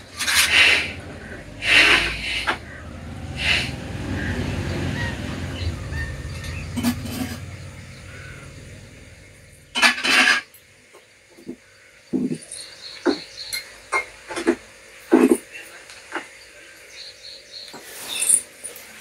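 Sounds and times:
steel utensils clinking: 6.2s - 7.7s, 17.8s - 19.0s.

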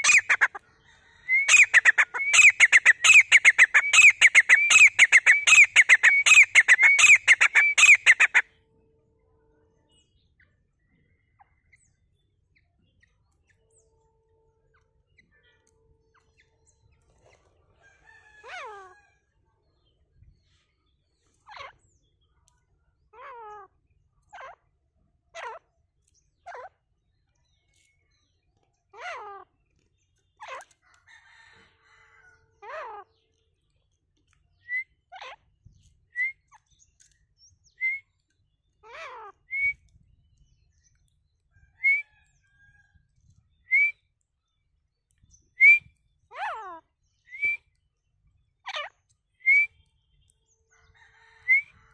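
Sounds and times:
francolin calling: 0.0s - 0.6s, 1.3s - 8.4s.

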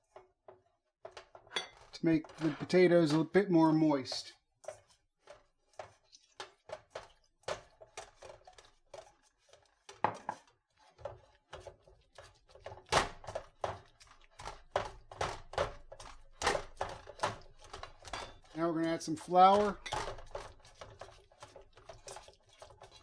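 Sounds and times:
potato masher thunking in metal bowl: 19.5s - 20.4s.

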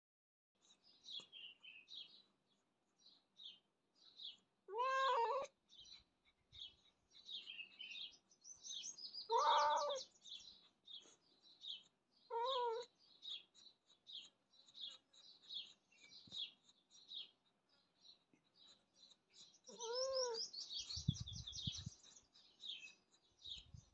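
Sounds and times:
birds chirping: 0.6s - 23.9s
cat meowing: 4.7s - 5.6s, 9.3s - 10.1s, 12.3s - 12.9s, 19.7s - 20.5s.

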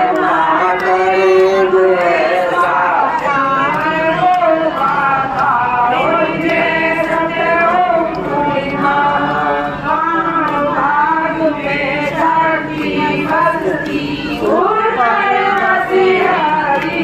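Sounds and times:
group singing a hymn: 0.0s - 17.0s.

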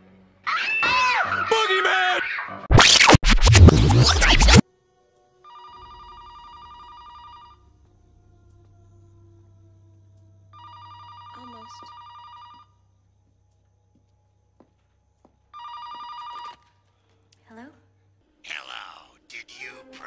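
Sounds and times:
loud burst of music: 2.7s - 4.6s
telephone ringing: 5.5s - 7.6s, 10.6s - 12.8s, 15.6s - 16.7s.

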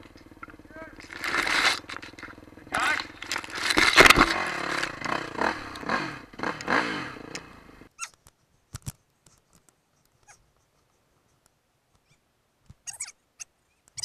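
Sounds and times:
dirt bike engine revving: 0.0s - 7.9s.

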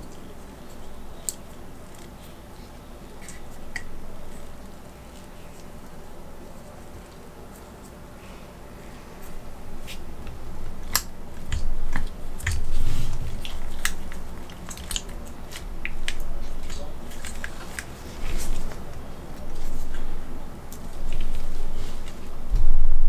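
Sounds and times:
muffled rubbing and bumps: 11.4s - 14.2s.

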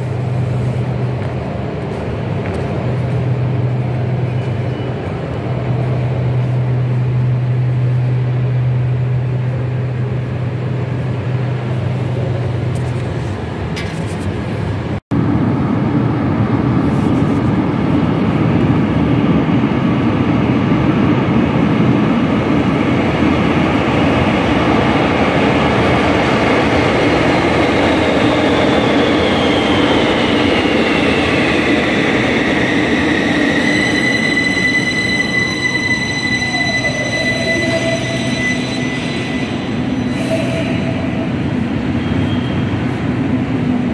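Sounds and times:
train wheels rumbling on rails: 0.0s - 43.9s
train electric whine: 24.2s - 43.9s.

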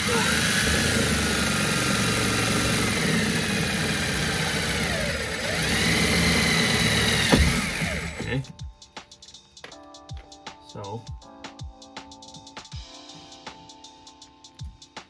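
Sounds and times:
drill stopping with a knock: 0.0s - 8.4s
cordless drill whining: 0.0s - 8.5s.

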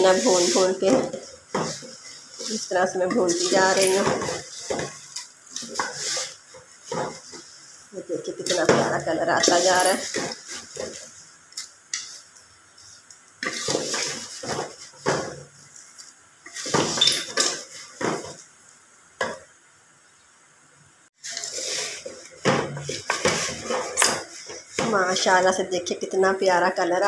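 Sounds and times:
spoon scraping in pot: 0.0s - 7.6s, 8.4s - 14.9s.

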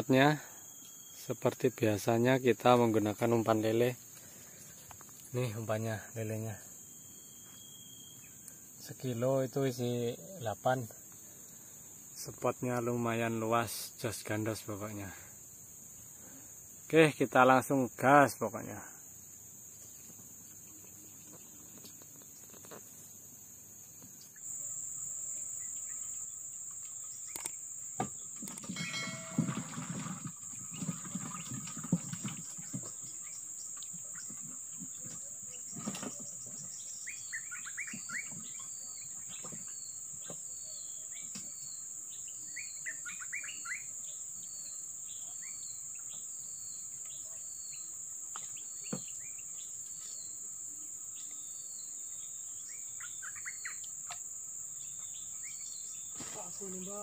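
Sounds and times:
bird chirping: 5.4s - 9.3s, 24.2s - 31.6s, 32.2s - 57.0s
high-pitched insect drone: 24.4s - 31.1s.

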